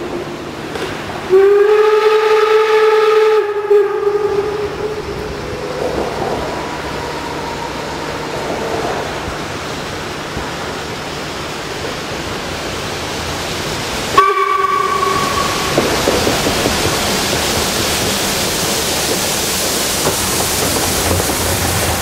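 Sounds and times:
steam train running: 0:00.0 - 0:22.0
steam whistle blowing: 0:01.3 - 0:09.3, 0:14.1 - 0:16.3.

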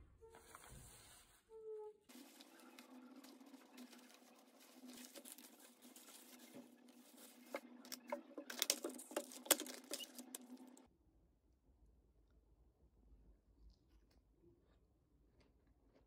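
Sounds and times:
plastic bag rustling: 0:02.1 - 0:10.9.

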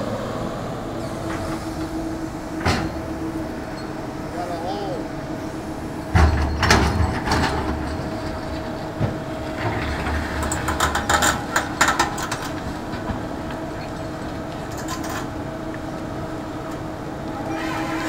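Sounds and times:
excavator engine running: 0:00.0 - 0:18.0.

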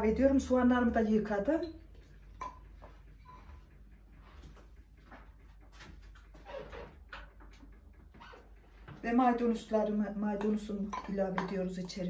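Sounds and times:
squeak: 0:06.4 - 0:06.9, 0:08.2 - 0:08.5.

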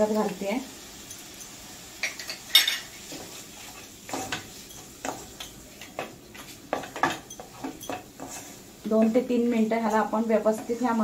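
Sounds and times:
spatula scraping metal pan: 0:06.4 - 0:08.6.

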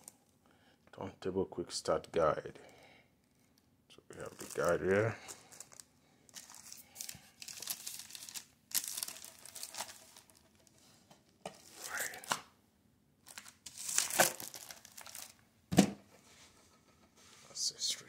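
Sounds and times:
plastic bag crinkling: 0:04.1 - 0:10.7, 0:13.3 - 0:15.4.

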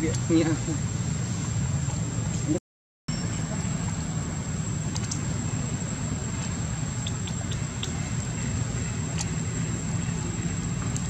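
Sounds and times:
high-pitched whine: 0:00.0 - 0:11.0
low background rumble: 0:00.0 - 0:11.0.

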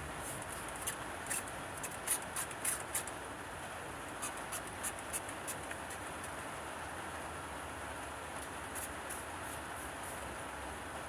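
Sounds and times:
steady background hiss: 0:00.0 - 0:11.0
spray bottle spritzing water: 0:00.2 - 0:03.1.

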